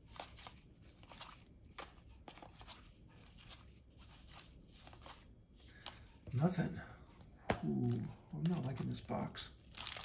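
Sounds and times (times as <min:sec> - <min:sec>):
cards flicking and rustling: 0:00.0 - 0:06.1.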